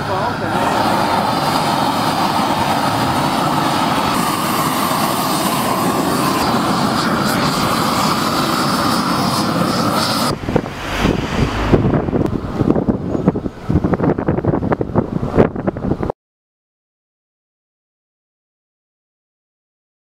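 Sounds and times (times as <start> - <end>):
gas torch burning: 0.2 - 14.0.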